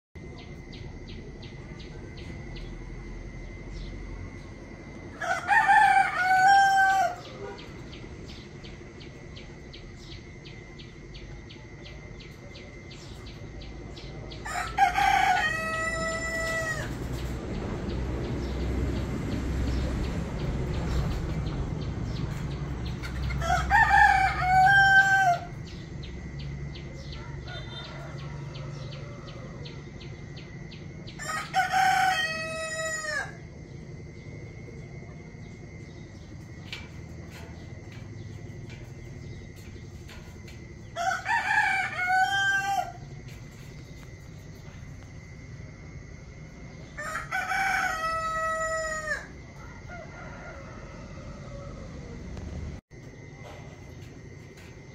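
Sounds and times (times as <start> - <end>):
rooster crowing: 5.1 - 8.4, 13.9 - 17.2, 23.0 - 25.8, 26.5 - 33.6, 37.4 - 44.6, 46.8 - 52.8.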